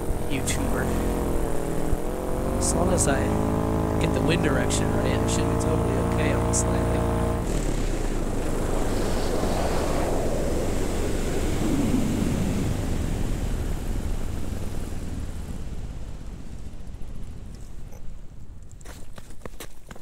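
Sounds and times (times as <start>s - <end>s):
air rushing over microphone: 4.0s - 15.4s.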